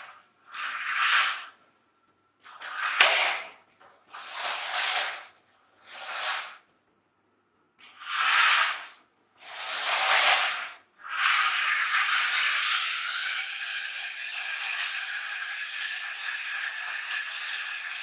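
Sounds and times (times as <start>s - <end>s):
toy car motor whirring: 11.3s - 18.0s.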